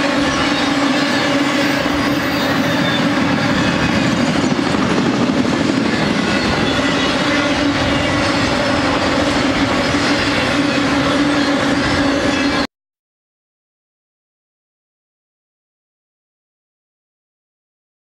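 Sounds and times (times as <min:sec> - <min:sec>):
train wheels rumbling on rail: 0:00.0 - 0:12.7.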